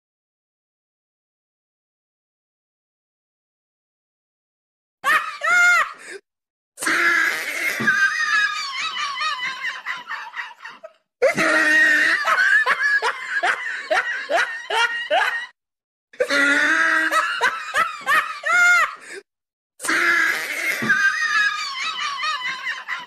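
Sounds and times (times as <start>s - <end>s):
high-pitched laughter: 7.3s - 15.6s, 16.2s - 19.0s, 20.2s - 23.0s.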